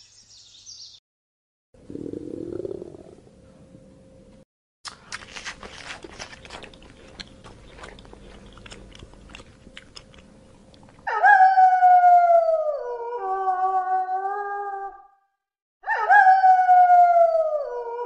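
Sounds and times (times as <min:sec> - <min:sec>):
giraffe chewing: 0:04.9 - 0:11.0
wolf howling: 0:11.0 - 0:15.2, 0:15.8 - 0:18.0.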